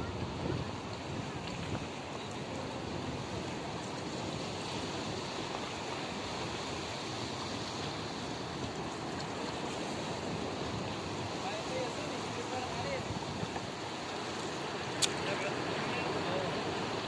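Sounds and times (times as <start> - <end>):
waves breaking on shore and rocks: 0.0 - 17.0.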